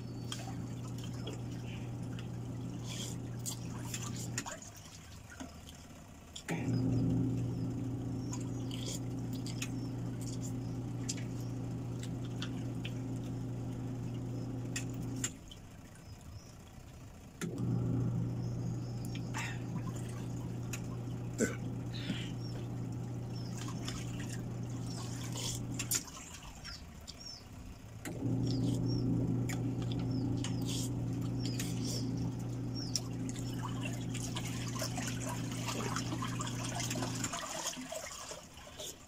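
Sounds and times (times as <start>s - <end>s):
low mechanical hum: 0.0s - 39.0s
noodles being slurped: 2.8s - 4.4s, 24.8s - 26.2s, 30.5s - 32.2s.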